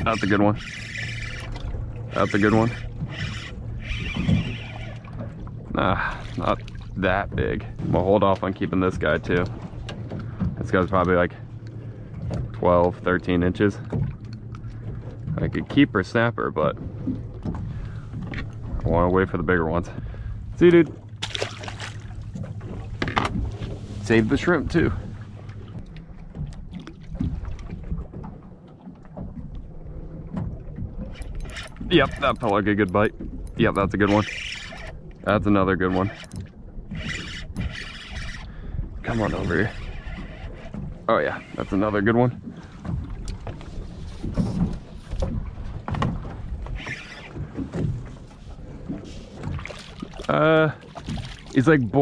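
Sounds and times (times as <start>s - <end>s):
water lapping against boat hull: 0.0s - 52.0s
low knocks on hull: 13.8s - 15.8s, 16.6s - 20.1s, 20.9s - 23.8s, 24.5s - 31.1s, 42.3s - 46.6s, 47.4s - 51.6s.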